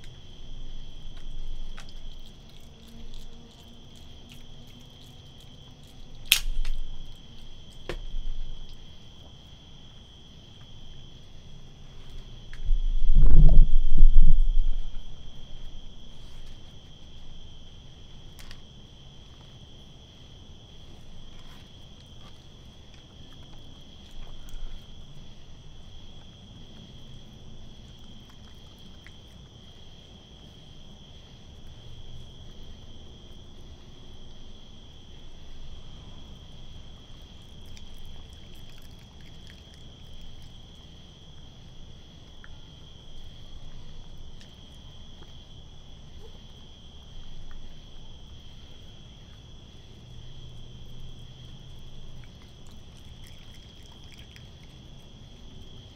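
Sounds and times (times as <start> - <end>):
crickets trilling: 0.0 - 55.9
low rumble: 12.3 - 16.2.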